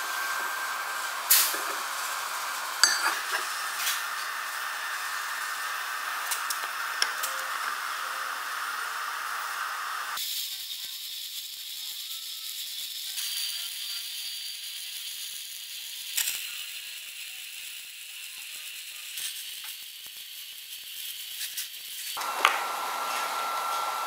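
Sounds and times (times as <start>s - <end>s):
welding sharp pops: 0.0s - 7.9s
welding arc sizzling: 0.0s - 24.0s.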